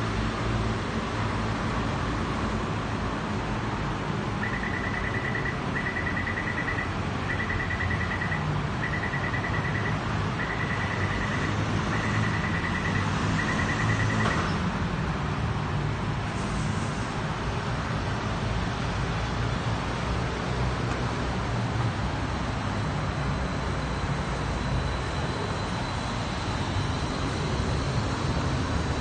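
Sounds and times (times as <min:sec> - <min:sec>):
rapid electronic beeping: 0:04.4 - 0:14.3.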